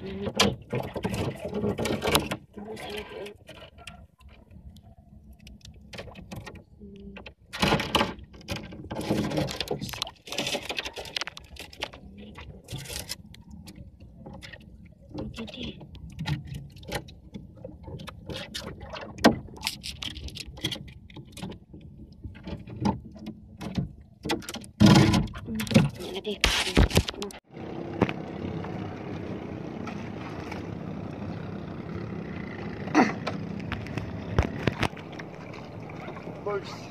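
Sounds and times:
knocks against wooden hull: 0:22.3 - 0:27.2.

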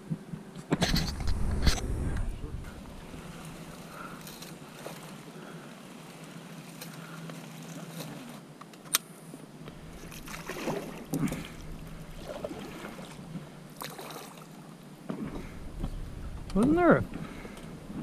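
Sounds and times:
water splashing around boat: 0:09.6 - 0:18.0.

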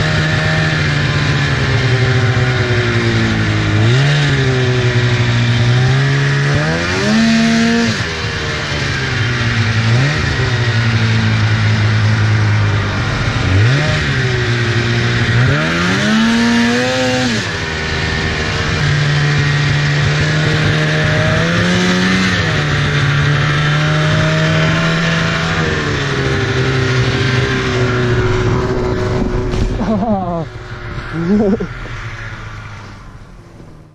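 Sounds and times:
snowmobile engine revving: 0:00.0 - 0:33.9.

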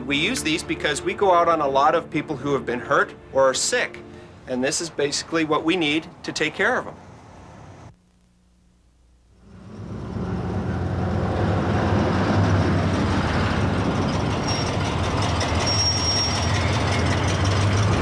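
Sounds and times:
road noise: 0:00.0 - 0:07.9, 0:09.4 - 0:18.0
pickup truck engine running: 0:09.4 - 0:18.0.

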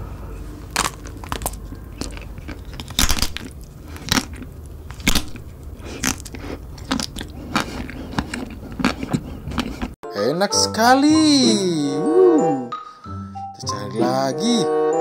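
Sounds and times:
soft chewing: 0:00.4 - 0:10.0
hard chocolate coating cracking: 0:00.6 - 0:09.2.

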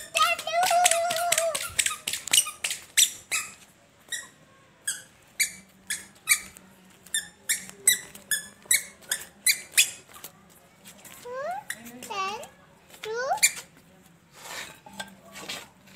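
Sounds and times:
squeaky sandals squeaking: 0:00.0 - 0:10.3, 0:11.1 - 0:12.1, 0:13.3 - 0:13.8.

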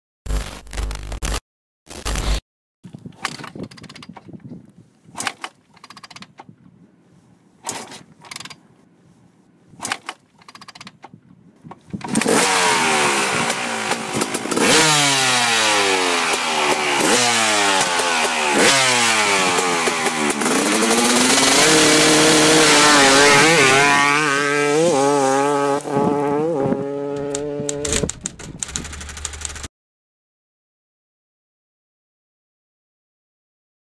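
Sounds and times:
sharp clicks and knocks: 0:02.9 - 0:04.5, 0:05.2 - 0:06.6, 0:07.6 - 0:08.6, 0:09.8 - 0:12.4, 0:27.1 - 0:29.7
dirt bike engine revving: 0:12.0 - 0:29.7.

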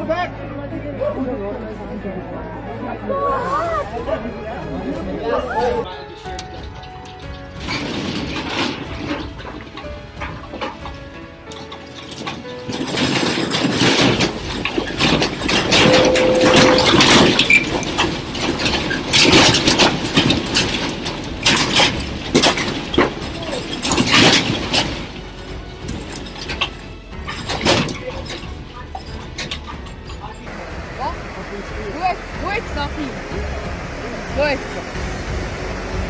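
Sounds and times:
classroom rattling in earthquake: 0:06.5 - 0:30.4.

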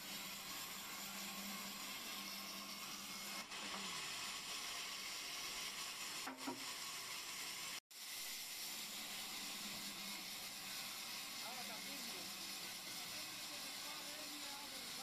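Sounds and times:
band saw running: 0:00.0 - 0:15.0.

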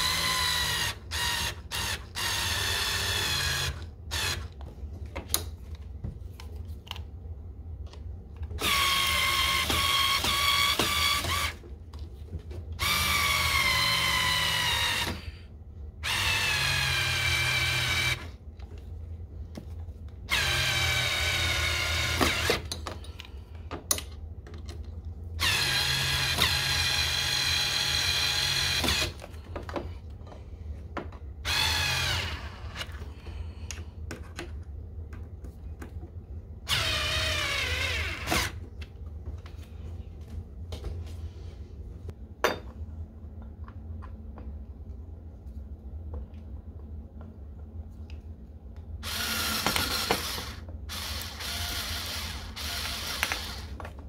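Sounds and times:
cordless screwdriver whine: 0:49.0 - 0:53.8.

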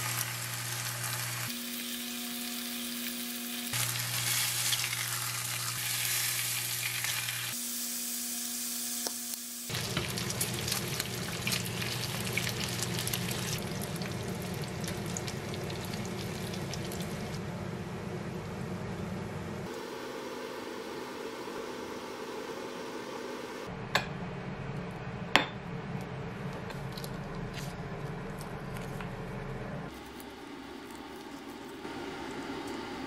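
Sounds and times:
meat sizzling in a pan: 0:00.0 - 0:17.4.

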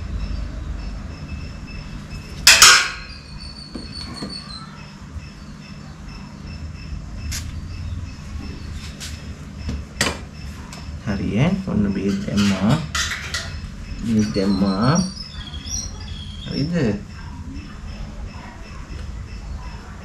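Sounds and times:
steady low hum: 0:00.0 - 0:20.0
metal forceps clanking on steel table: 0:02.4 - 0:03.2.

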